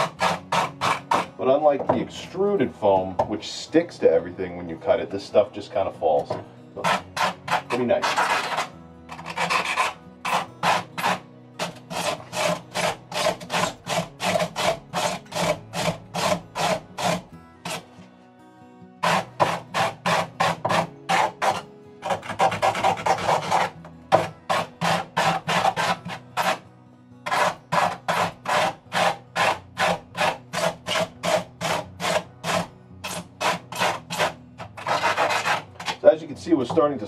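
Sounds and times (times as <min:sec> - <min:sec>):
knife scraping foam: 0:00.0 - 0:01.3, 0:06.8 - 0:18.0, 0:19.0 - 0:26.6, 0:27.3 - 0:36.0.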